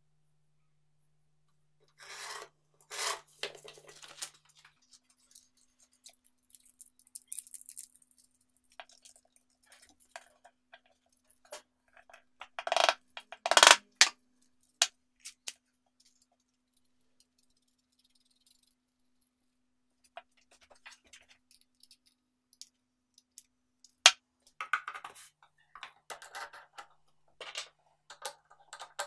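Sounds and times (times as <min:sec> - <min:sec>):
knife blade scraping sandpaper: 0:02.0 - 0:03.3
paper rustling: 0:02.2 - 0:05.6.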